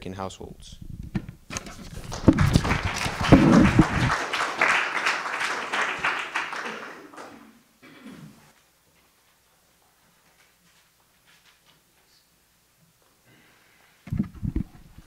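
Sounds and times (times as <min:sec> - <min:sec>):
audience applauding: 0:01.8 - 0:07.6.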